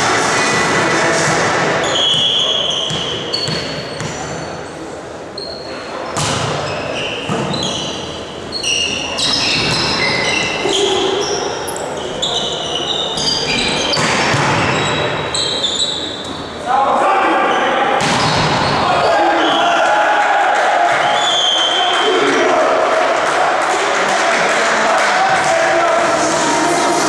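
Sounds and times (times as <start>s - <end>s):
voices echoing: 0.0s - 27.0s
sneaker squeaks on court floor: 1.8s - 4.7s, 5.4s - 16.6s, 18.0s - 19.6s
volleyball hits: 6.2s - 7.6s, 13.7s - 15.0s, 18.0s - 18.9s.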